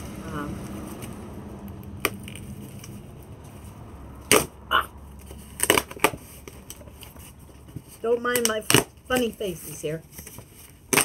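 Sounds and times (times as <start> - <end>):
cardboard box cracking: 5.2 - 9.4, 10.1 - 11.0
cardboard ripping: 5.2 - 11.0.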